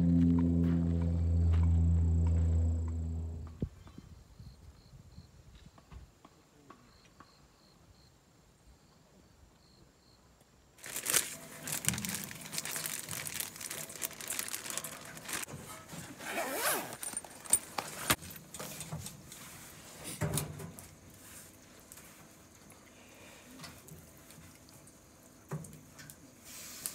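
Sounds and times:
plastic bag crinkling: 10.8s - 15.5s.

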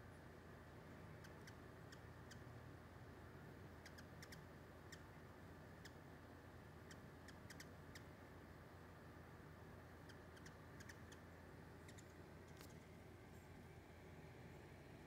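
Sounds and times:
hummingbird chip calls: 0.3s - 2.6s, 3.6s - 8.3s, 9.9s - 15.0s.

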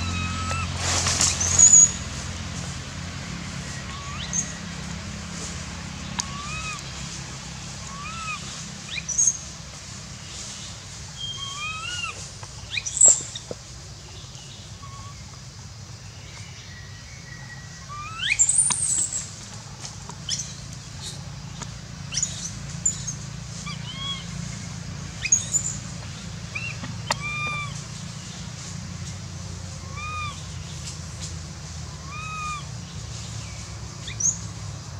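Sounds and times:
baby monkey crying: 0.0s - 0.8s, 6.2s - 6.8s, 7.9s - 8.6s, 11.4s - 12.2s, 23.6s - 24.3s, 26.6s - 27.8s, 29.8s - 30.5s, 32.0s - 32.7s
high rising squeals: 0.0s - 2.4s.

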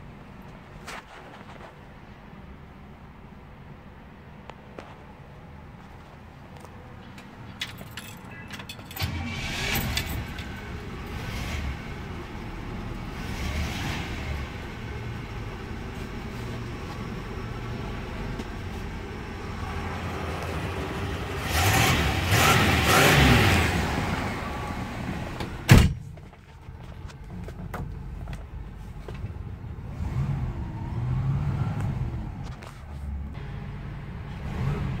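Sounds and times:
car engine revving: 9.0s - 25.5s, 29.8s - 32.5s.

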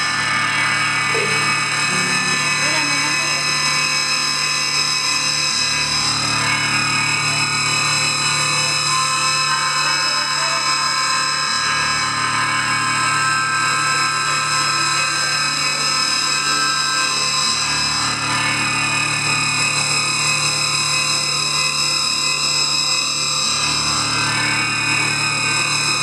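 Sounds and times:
electric guitar noise drone: 0.0s - 26.0s.

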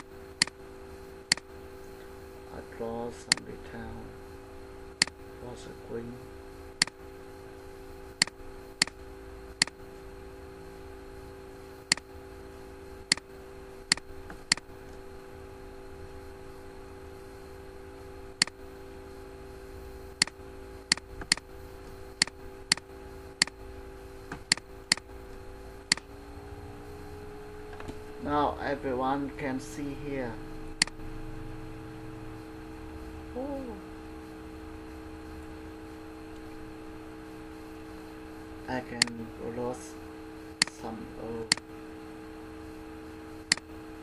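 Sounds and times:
steady low hum: 0.0s - 44.0s
computer mouse clicks: 1.3s - 1.5s, 3.3s - 3.5s, 11.9s - 12.1s, 13.9s - 14.7s, 20.2s - 21.4s, 22.2s - 23.6s, 24.3s - 25.1s, 43.5s - 43.7s.

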